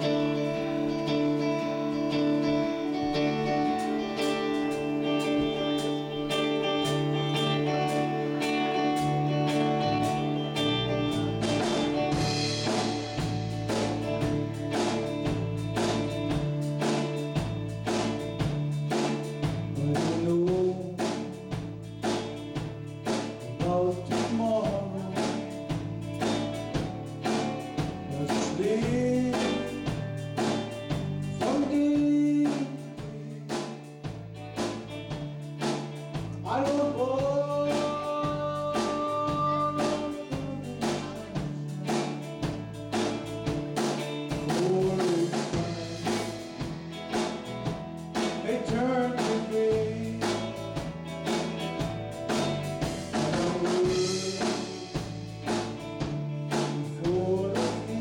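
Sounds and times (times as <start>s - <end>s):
live band playing gospel: 0.0s - 58.0s
steady drum beat: 3.3s - 58.0s
man singing: 19.7s - 21.7s, 23.6s - 25.9s, 28.1s - 30.2s, 31.0s - 33.9s, 36.4s - 42.6s, 44.3s - 46.8s, 48.2s - 51.0s, 52.8s - 55.2s, 56.5s - 58.0s.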